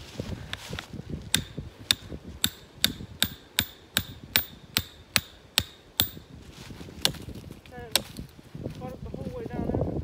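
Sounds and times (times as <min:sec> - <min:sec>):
hammer pounding metal stake: 0:01.3 - 0:06.3.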